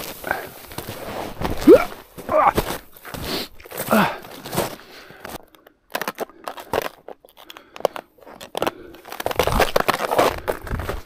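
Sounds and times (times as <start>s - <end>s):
snowshoes crunching in snow: 0.0s - 5.3s, 9.1s - 11.0s.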